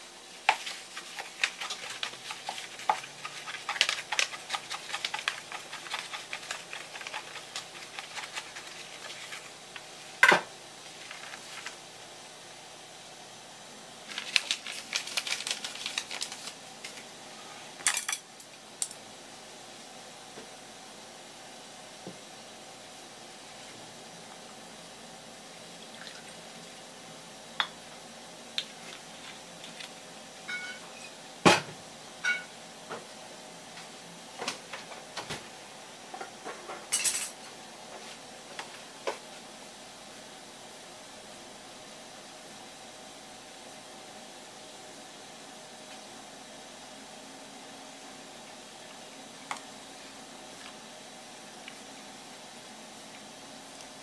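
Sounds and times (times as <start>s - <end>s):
paper crinkling in hand: 0.5s - 9.9s, 10.9s - 11.8s, 14.1s - 17.0s, 28.7s - 30.0s
tableware knocking and chinking: 30.5s - 31.1s, 32.2s - 32.5s.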